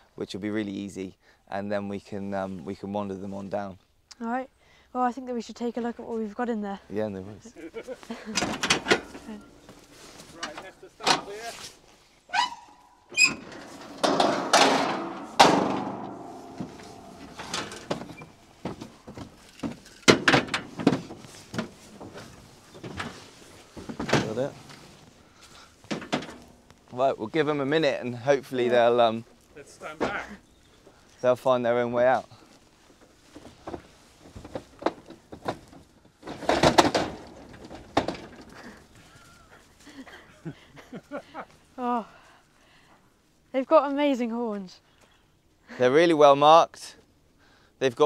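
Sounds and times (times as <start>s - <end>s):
light knocks and rattles: 8.1s - 11.4s, 13.3s - 26.9s, 32.9s - 39.2s
metal trailer clanks and bangs: 13.2s - 23.2s, 23.8s - 24.9s, 35.4s - 38.6s.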